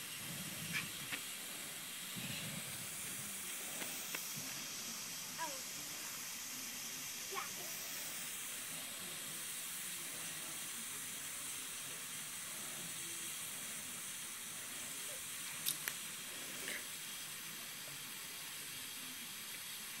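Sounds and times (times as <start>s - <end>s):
sprinkler spraying water: 0.0s - 20.0s.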